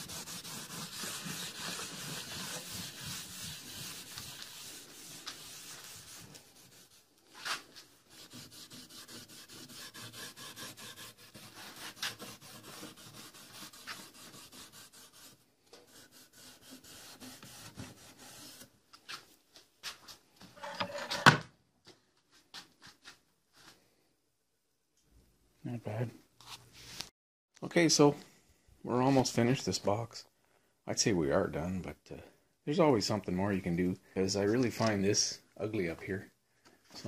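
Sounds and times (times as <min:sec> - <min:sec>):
cloth rubbing on wood: 0:00.0 - 0:18.7.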